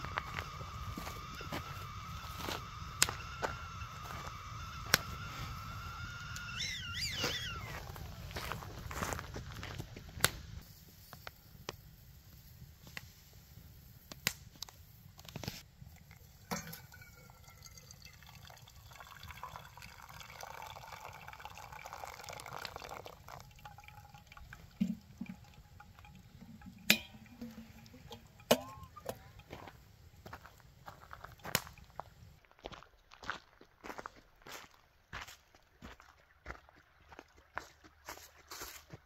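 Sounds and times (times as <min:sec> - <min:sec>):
water pouring onto coffee: 0:15.8 - 0:29.5
metal kettle clinks: 0:16.4 - 0:18.1, 0:24.8 - 0:29.4.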